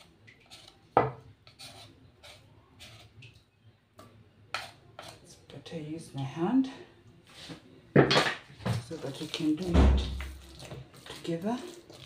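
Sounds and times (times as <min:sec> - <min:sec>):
spoon scraping a metal bowl: 0:00.0 - 0:03.2, 0:04.5 - 0:05.3.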